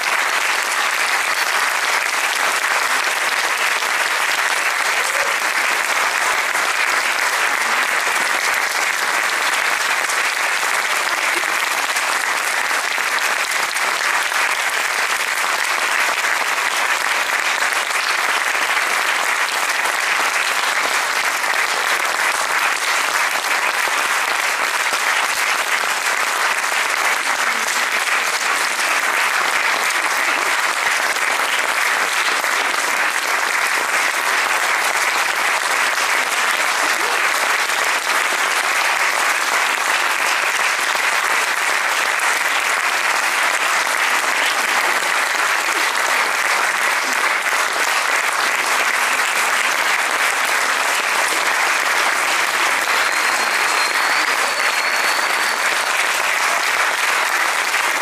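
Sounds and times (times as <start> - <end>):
audience applauding: 0.0 - 58.0.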